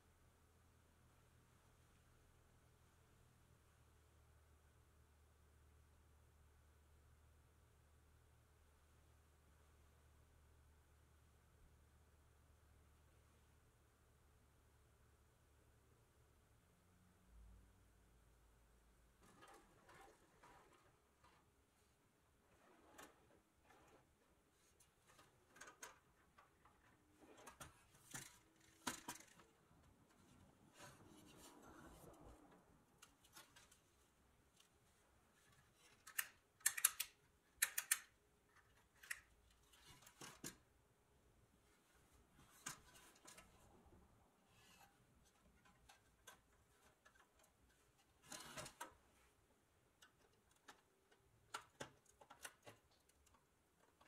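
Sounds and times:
toy car metallic clicks and knocks: 27.3s - 29.5s, 35.8s - 40.6s.

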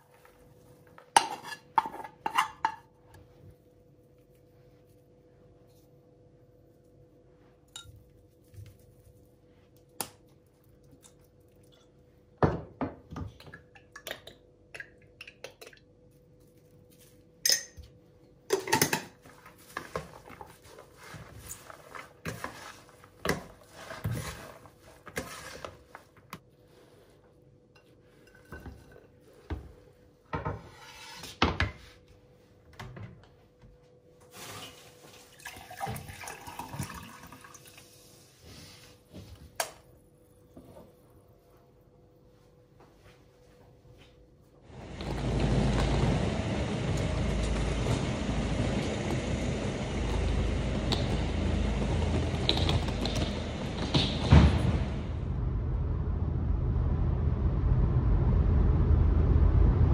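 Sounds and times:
metal spoon scraping plastic bowl: 21.3s - 26.0s
water pouring into glass: 35.4s - 37.8s.

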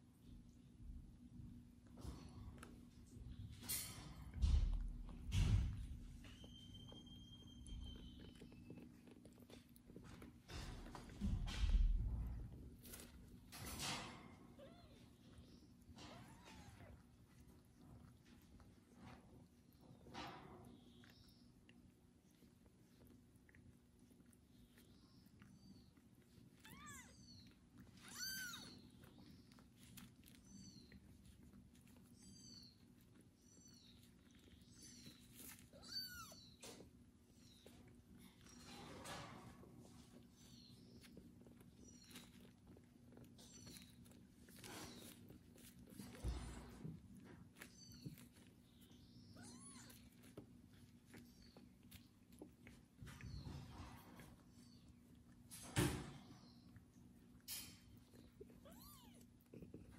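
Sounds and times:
kitten meowing: 16.0s - 17.0s, 26.6s - 28.8s, 34.7s - 36.6s, 49.3s - 50.3s, 58.5s - 59.4s.

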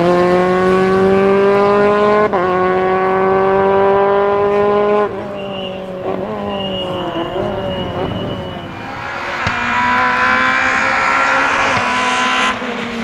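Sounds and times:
rally car engine accelerating: 0.0s - 13.0s
thin high squeal: 6.4s - 8.9s.

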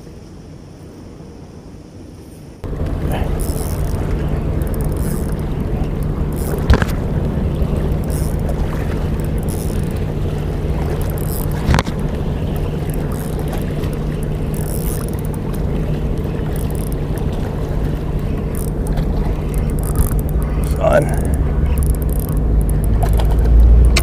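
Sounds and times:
engine running: 2.6s - 24.0s.

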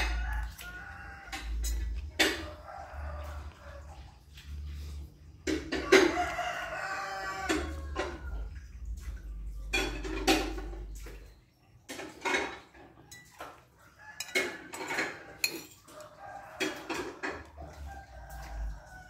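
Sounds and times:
spoon scraping ceramic plate: 14.2s - 15.9s.

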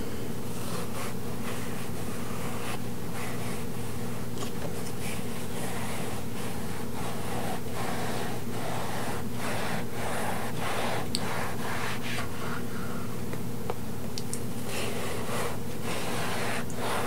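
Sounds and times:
steady low hum: 0.0s - 17.0s
knife sawing cotton candy: 5.1s - 12.2s, 14.6s - 17.0s.

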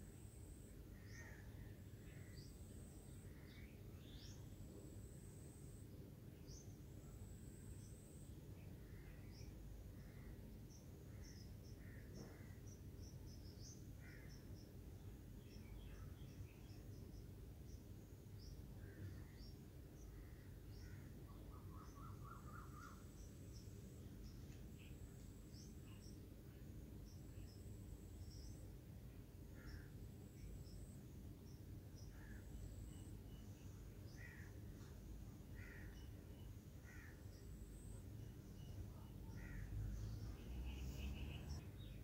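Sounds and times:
faint low hum: 0.0s - 42.0s
faint crow caws: 1.0s - 2.4s, 11.2s - 12.6s, 14.0s - 14.6s, 20.1s - 23.0s, 29.5s - 30.0s, 32.1s - 32.5s, 34.1s - 34.9s, 35.5s - 36.1s, 36.8s - 37.4s, 39.3s - 40.0s
distant bird chirps: 6.4s - 26.3s, 27.0s - 42.0s.

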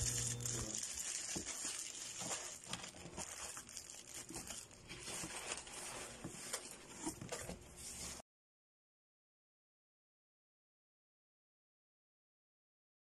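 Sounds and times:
plastic packets crinkling: 0.0s - 7.7s.

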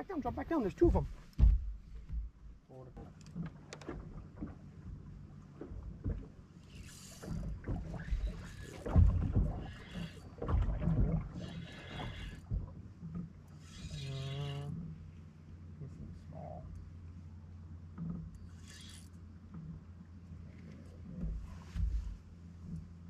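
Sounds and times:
knocks and scuffs on deck: 1.3s - 2.3s, 21.2s - 22.2s
electric trolling motor humming: 3.1s - 15.8s, 16.7s - 21.2s.

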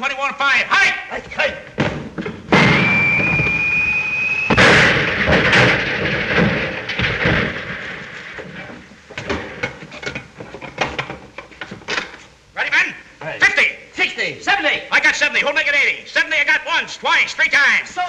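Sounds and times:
loud explosion: 2.5s - 8.7s
high whistle of shell: 2.6s - 4.6s.

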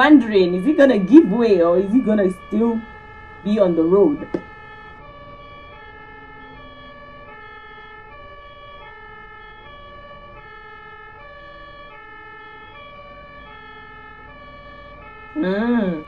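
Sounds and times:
road noise: 0.0s - 7.4s
two-tone ambulance siren: 0.0s - 16.0s.

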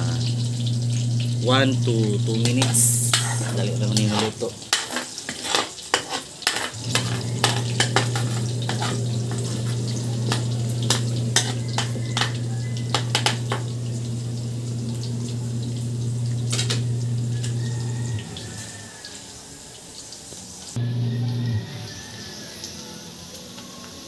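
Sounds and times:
oil sizzling: 0.0s - 24.0s
metal spatula scraping wok: 2.0s - 14.3s, 16.3s - 18.8s
low hum: 6.8s - 18.4s.

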